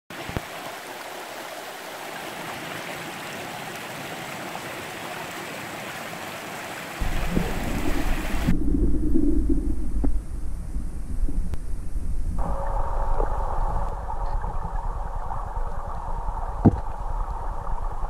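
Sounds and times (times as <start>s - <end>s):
water rushing over stones: 0.1s - 11.6s
muffled underwater water sound: 6.9s - 18.0s
low rumble: 7.0s - 18.0s.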